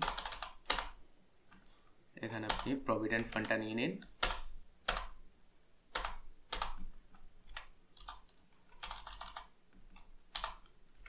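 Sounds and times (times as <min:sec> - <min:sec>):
computer keyboard keystrokes: 0:00.0 - 0:01.0, 0:02.4 - 0:05.2, 0:05.9 - 0:06.8, 0:07.5 - 0:10.7.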